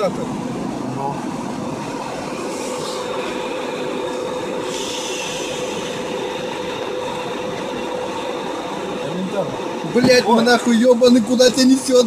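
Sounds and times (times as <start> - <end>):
car road and engine noise: 0.0 - 12.0
hiss: 4.6 - 6.6.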